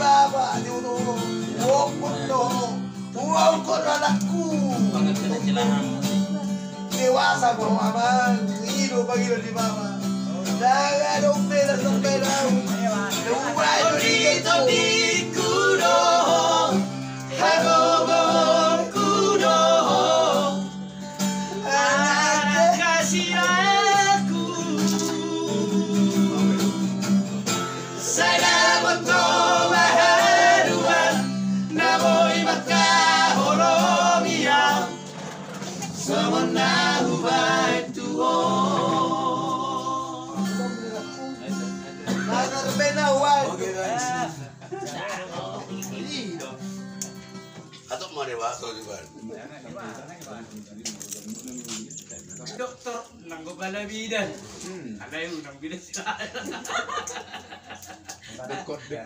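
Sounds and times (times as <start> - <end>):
men singing together: 0.0 - 4.6, 6.9 - 9.7, 10.5 - 20.8, 21.4 - 27.1, 27.7 - 40.7
strummed acoustic guitar: 0.0 - 51.8.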